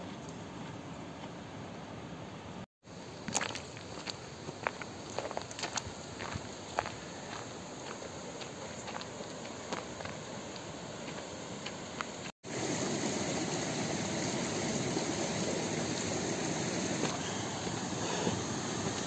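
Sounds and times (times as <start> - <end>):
footsteps crunching on stony trail: 3.2 - 12.3
stream rushing over rocks: 11.5 - 19.0.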